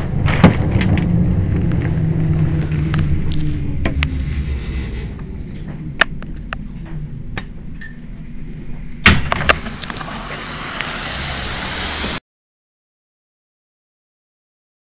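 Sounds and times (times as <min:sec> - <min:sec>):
tram humming: 0:00.0 - 0:09.0, 0:09.6 - 0:12.2
steady hiss: 0:08.9 - 0:12.2.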